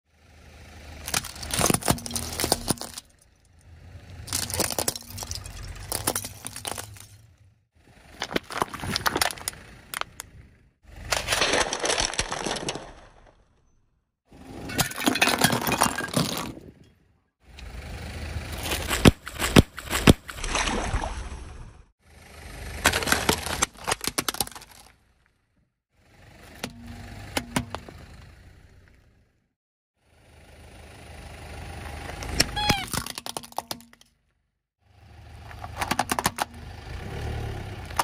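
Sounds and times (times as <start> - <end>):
car tyre crushing objects: 0.9 - 13.8, 14.5 - 16.9, 18.4 - 20.8, 22.7 - 25.6, 26.4 - 29.0, 32.2 - 34.3, 35.4 - 38.0.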